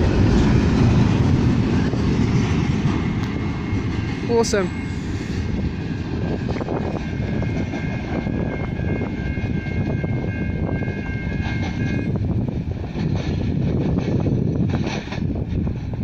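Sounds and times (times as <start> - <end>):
freight train rumbling: 0.0 - 16.0
high two-pitch whine: 3.3 - 5.7.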